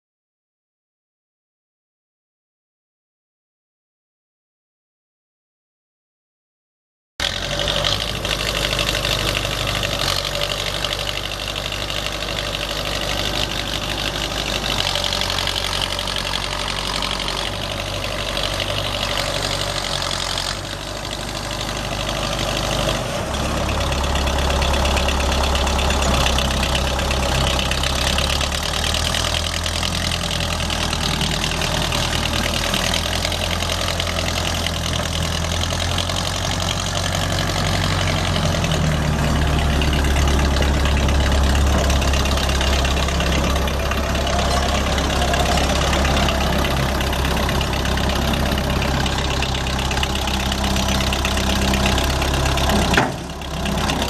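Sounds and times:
diesel engine idling: 7.2s - 54.0s.

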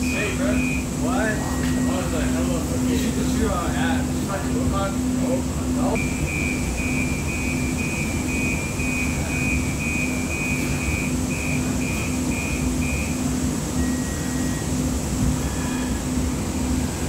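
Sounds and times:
rapid high warning beeps: 0.0s - 2.5s, 6.0s - 14.9s
low pulsing hum: 0.0s - 17.0s.

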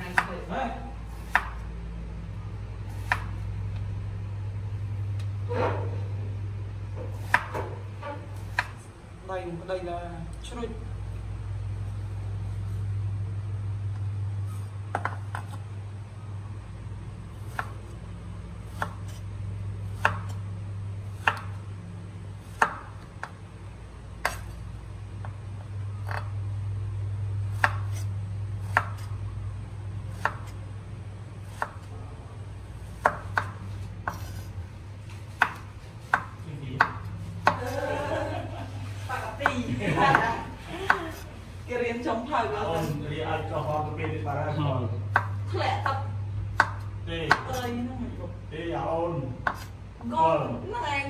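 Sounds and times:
knife chopping on wooden board: 0.0s - 0.4s, 1.1s - 1.6s, 2.9s - 3.4s, 7.0s - 7.8s, 8.4s - 8.8s, 14.6s - 15.6s, 17.4s - 17.8s, 18.7s - 19.2s, 19.9s - 20.4s, 21.1s - 21.6s, 22.4s - 23.4s, 24.2s - 24.6s, 26.0s - 26.3s, 27.5s - 29.2s, 30.1s - 30.6s, 31.4s - 31.9s, 33.0s - 34.5s, 35.3s - 37.8s, 39.4s - 41.3s, 45.1s - 45.4s, 46.5s - 47.7s, 49.4s - 49.7s
steady low hum: 0.0s - 51.0s.

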